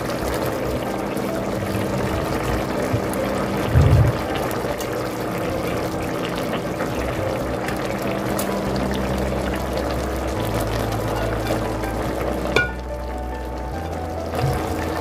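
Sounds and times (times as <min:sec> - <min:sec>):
sauce bubbling in a pot: 0:00.0 - 0:15.0
low thump: 0:03.8 - 0:04.2.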